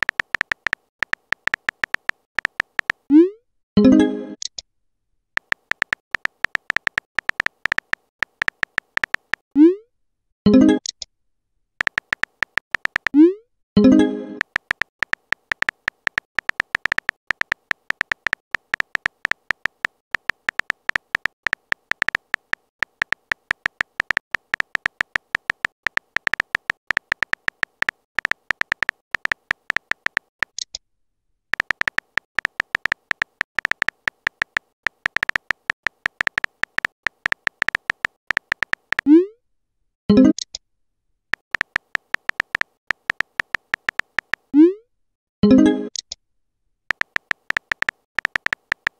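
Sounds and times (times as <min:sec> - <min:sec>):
phone keyboard typing clicks: 0:00.0 - 0:03.1, 0:05.4 - 0:09.4, 0:11.8 - 0:13.2, 0:13.8 - 0:30.8, 0:31.5 - 0:39.1, 0:41.3 - 0:44.5, 0:46.9 - 0:48.9.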